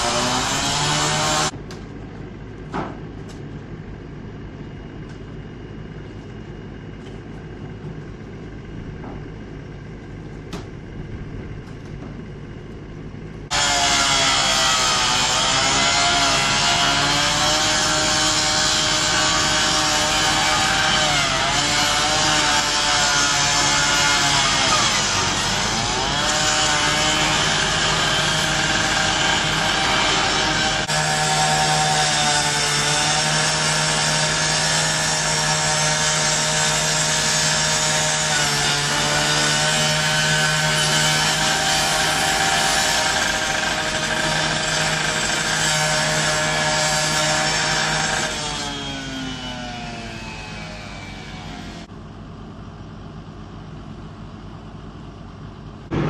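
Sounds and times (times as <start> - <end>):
power saw cutting sheet metal: 0.0 - 1.6, 13.5 - 51.9
low steady hum: 1.5 - 13.5.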